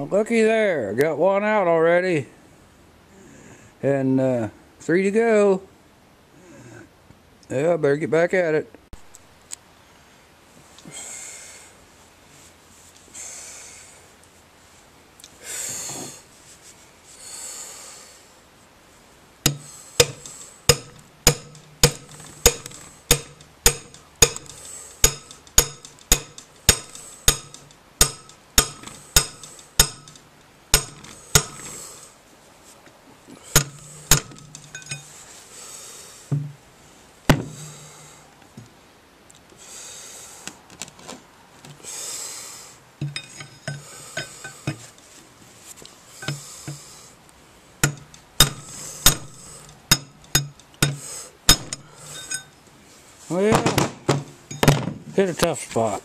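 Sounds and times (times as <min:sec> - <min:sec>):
hammer striking metal: 0:19.5 - 0:31.8, 0:33.5 - 0:35.1, 0:47.8 - 0:52.5.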